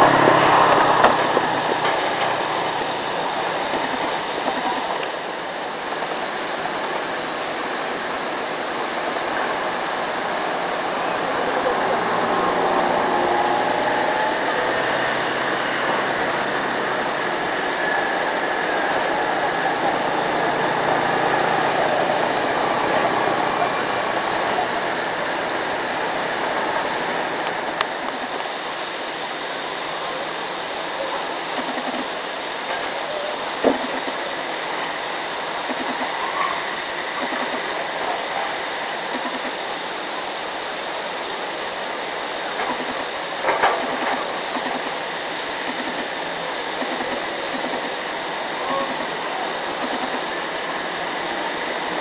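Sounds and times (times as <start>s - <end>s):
distant excavator rumble: 0.0s - 6.9s.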